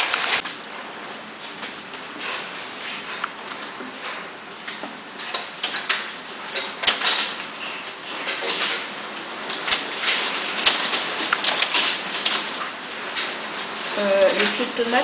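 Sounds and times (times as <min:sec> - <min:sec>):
heavy rain hissing: 0:00.0 - 0:00.4
raindrops tapping on window: 0:00.0 - 0:15.0.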